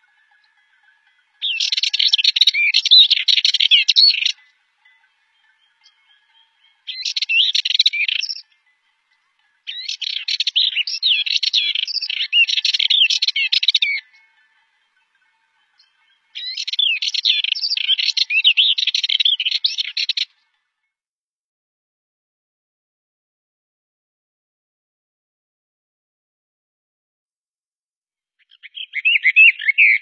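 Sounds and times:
bird chattering song: 0.0s - 20.4s, 28.4s - 30.0s.

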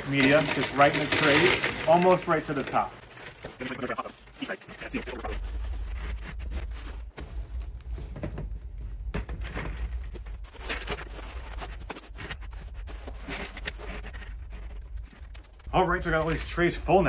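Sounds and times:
ceramic pellets clattering: 0.0s - 4.3s
plastic bag rustling: 0.0s - 16.4s.

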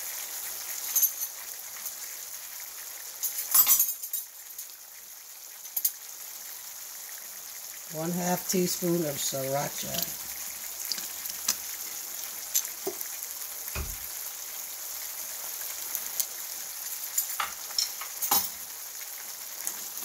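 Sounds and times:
meat sizzling in a skillet: 0.0s - 20.0s.

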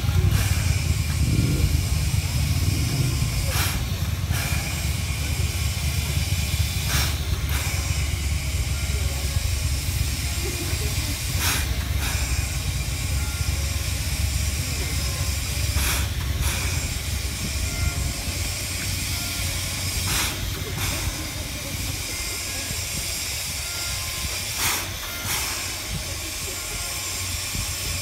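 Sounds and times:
low rumble: 0.0s - 6.9s
steam locomotive hissing: 0.0s - 28.0s.

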